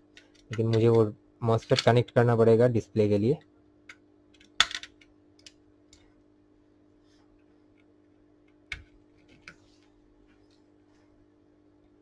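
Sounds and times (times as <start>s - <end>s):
low electrical hum: 0.0s - 12.0s
tools and parts clicking: 3.9s - 6.0s.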